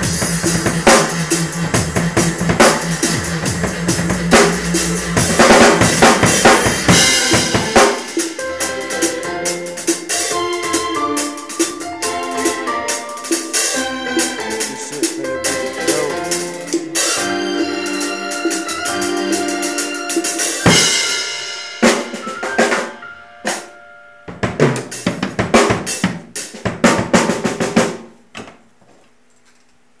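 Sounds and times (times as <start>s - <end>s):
cymbal crashes: 0.0s - 9.0s
drum kit played hard: 0.0s - 28.2s.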